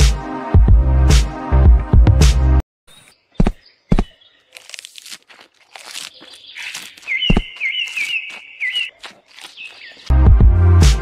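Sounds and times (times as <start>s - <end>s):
leaves crunching and tearing: 4.4s - 10.2s
high chirping call: 5.8s - 10.1s.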